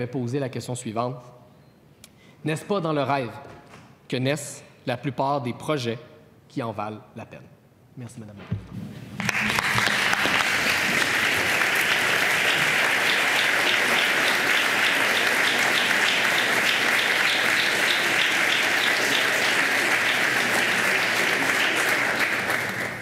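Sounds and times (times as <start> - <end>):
dense applause: 9.2 - 23.0.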